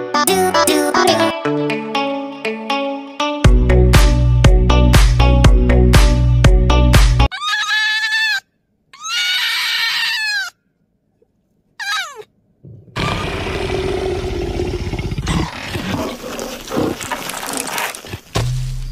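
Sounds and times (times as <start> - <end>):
fox screaming: 7.3 - 10.6, 11.8 - 12.3.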